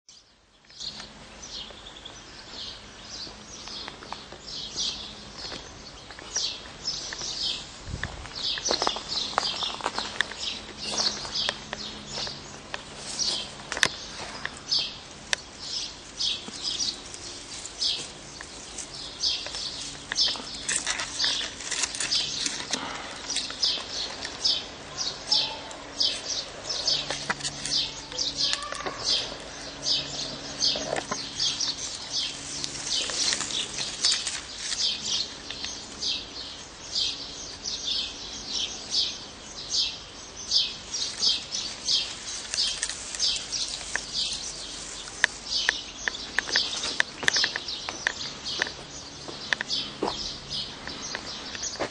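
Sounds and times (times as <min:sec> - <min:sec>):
young finches chirping: 0:08.4 - 0:51.8
clicks and rustles: 0:16.3 - 0:24.6, 0:25.7 - 0:35.8, 0:41.0 - 0:49.8.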